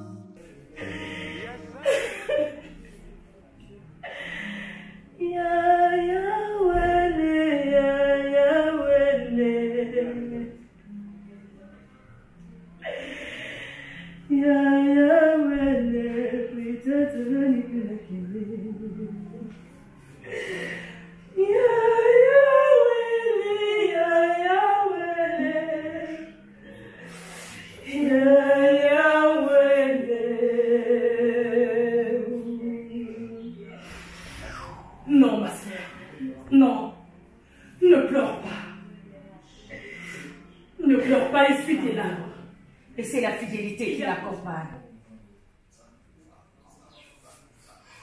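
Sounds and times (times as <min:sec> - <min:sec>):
woman singing unaccompanied: 0:04.4 - 0:11.5, 0:14.1 - 0:19.7, 0:20.3 - 0:26.4, 0:27.6 - 0:33.6, 0:40.8 - 0:44.0.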